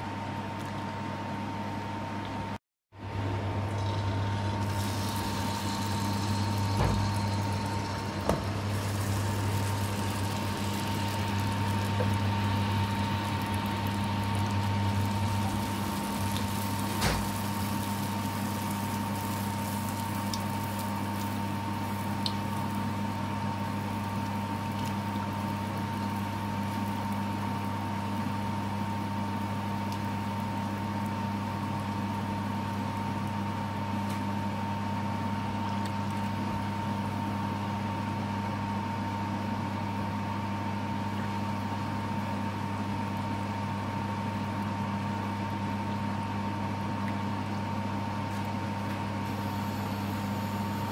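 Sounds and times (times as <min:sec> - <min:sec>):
mechanical hum: 0:00.0 - 0:50.9
batter sizzling in hot oil: 0:03.8 - 0:37.6, 0:49.2 - 0:50.9.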